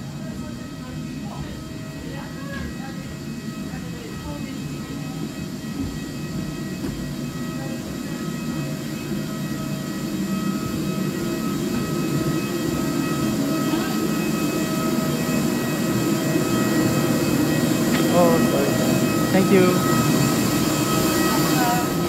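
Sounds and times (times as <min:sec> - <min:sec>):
parked airliner drone: 0:00.0 - 0:22.0
high whining tones: 0:08.2 - 0:22.0.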